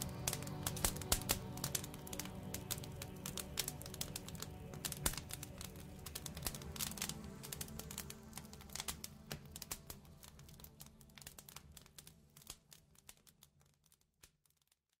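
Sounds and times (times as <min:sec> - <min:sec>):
lounge music: 0:00.0 - 0:10.0
fire crackling and popping: 0:00.0 - 0:15.0.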